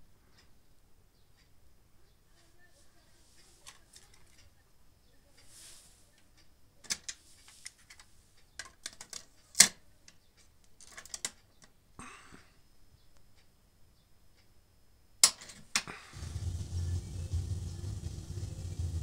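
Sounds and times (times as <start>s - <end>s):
plastic clicks and clunks: 6.8s - 11.8s.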